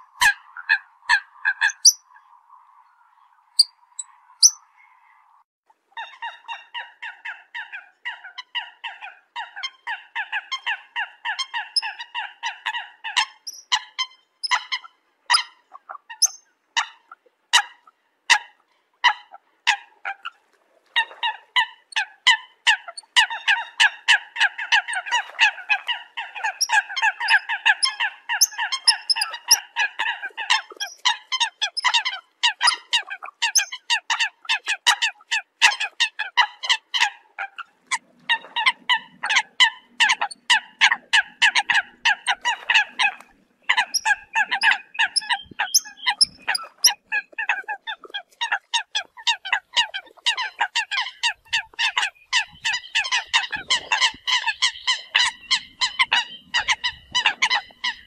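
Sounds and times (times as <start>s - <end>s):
coots calling: 0.0s - 2.4s, 6.0s - 58.0s.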